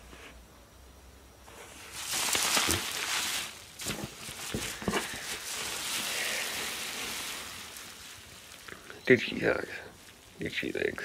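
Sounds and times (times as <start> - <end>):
cardboard box lid rustling: 1.6 - 8.7
bubble wrap crinkling: 1.6 - 10.9.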